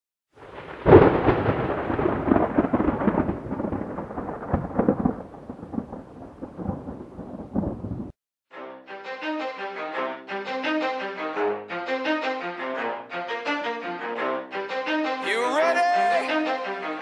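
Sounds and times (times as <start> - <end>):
sharp thunder crack: 0.4 - 8.2
thunder clap and rumble: 0.4 - 8.2.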